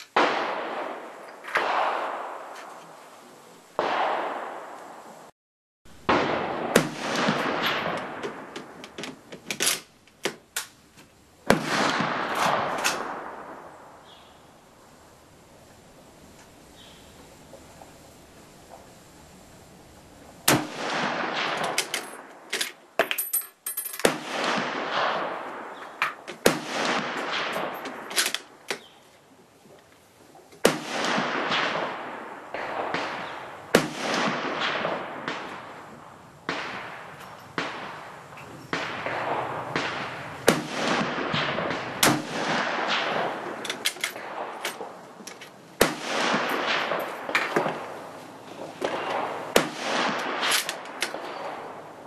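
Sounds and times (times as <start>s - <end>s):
rifle shots echoing: 0.0s - 2.6s, 3.8s - 4.8s, 6.0s - 9.0s, 11.5s - 13.9s, 20.5s - 22.7s, 24.0s - 28.6s, 30.6s - 45.2s, 45.8s - 52.0s.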